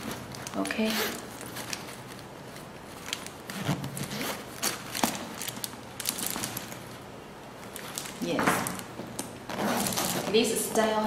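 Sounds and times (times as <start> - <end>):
hands rummaging in canvas bag: 0.0 - 7.0, 9.5 - 10.6
paper stuffing crinkling: 0.0 - 10.6.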